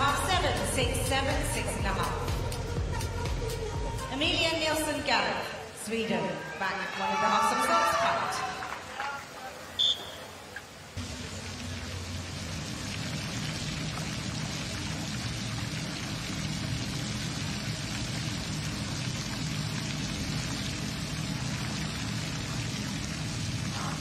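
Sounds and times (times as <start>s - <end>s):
water spraying onto pool: 7.1s - 24.0s.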